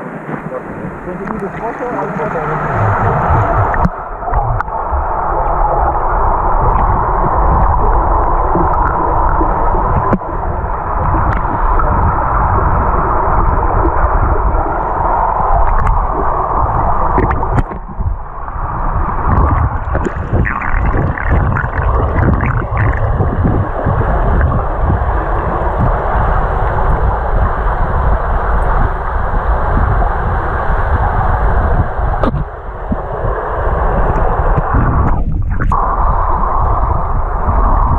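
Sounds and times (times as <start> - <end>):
muffled underwater rushing: 0.0 - 37.9
crackling: 19.0 - 24.7.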